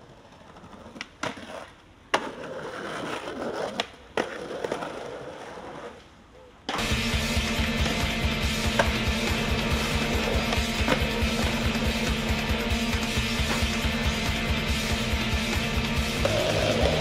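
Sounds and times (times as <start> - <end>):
skateboard clacks: 0.0 - 6.0, 7.6 - 15.0, 15.6 - 17.0
skateboard trucks grinding on stone: 0.0 - 6.2, 8.6 - 12.4, 13.0 - 14.0, 15.7 - 17.0
skateboard wheels rolling on stone: 0.0 - 17.0
music with a steady beat: 6.8 - 17.0.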